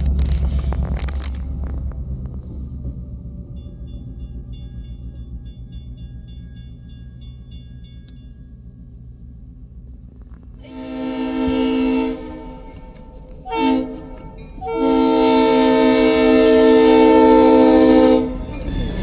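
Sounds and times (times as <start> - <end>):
locomotive rumbling: 0.0 - 19.0
locomotive air horn blasts: 10.6 - 18.5.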